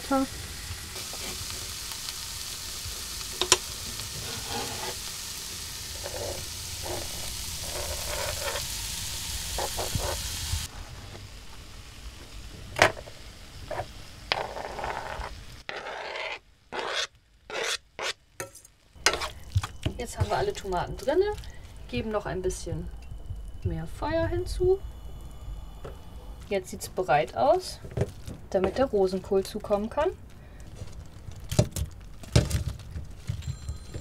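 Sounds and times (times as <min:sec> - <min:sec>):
vegetables sizzling in a frying pan: 0:00.0 - 0:15.7, 0:18.4 - 0:22.9
stirring in a pan: 0:03.4 - 0:08.7, 0:13.7 - 0:21.7.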